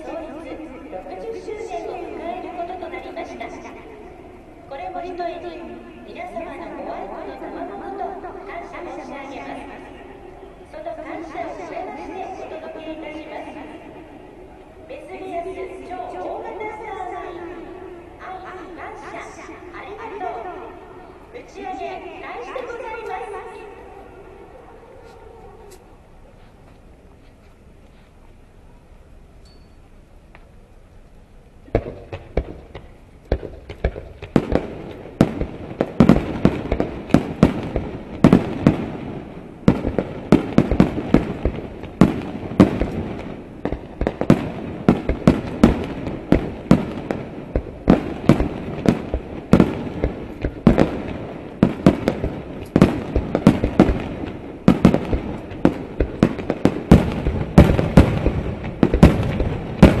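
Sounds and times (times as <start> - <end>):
fireworks bursting bangs: 31.7 - 60.0.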